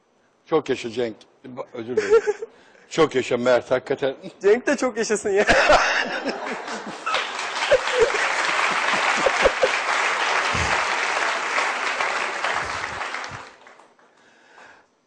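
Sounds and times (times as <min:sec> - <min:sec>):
audience applauding: 0:06.2 - 0:14.3.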